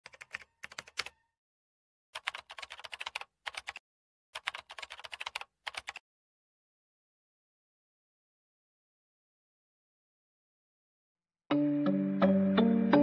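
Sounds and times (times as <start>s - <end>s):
computer keyboard typing: 0.0s - 1.2s, 2.2s - 3.8s, 4.4s - 6.0s.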